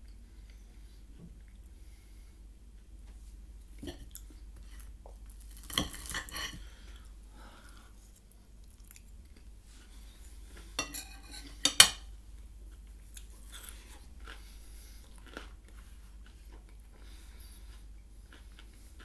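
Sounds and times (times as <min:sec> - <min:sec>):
person chewing food: 0:03.6 - 0:10.9, 0:12.7 - 0:19.0
metal fork clinking on plate: 0:10.8 - 0:12.0.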